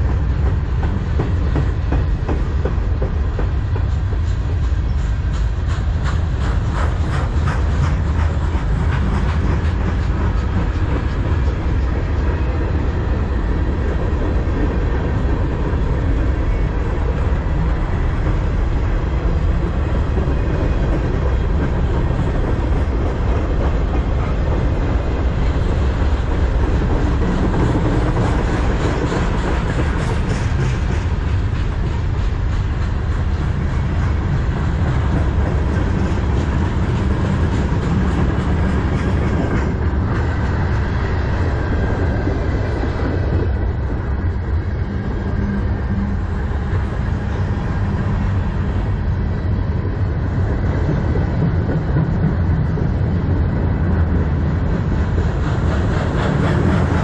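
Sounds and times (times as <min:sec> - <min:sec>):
wheels clacking on rail joints: 0:00.0 - 0:48.9, 0:50.2 - 0:57.0
train wheels rumbling on rails: 0:00.0 - 0:57.0.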